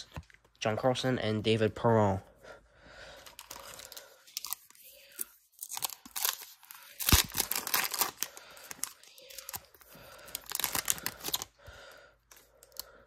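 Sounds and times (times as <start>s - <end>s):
foil wrapper crinkling and tearing: 3.3s - 11.6s.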